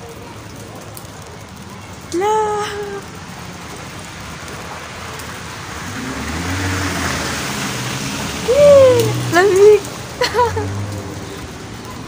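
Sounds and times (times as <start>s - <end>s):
tyre hiss on wet street: 0.0s - 12.0s
vehicle low rumble: 2.8s - 12.0s
woman exclaiming: 8.5s - 10.4s.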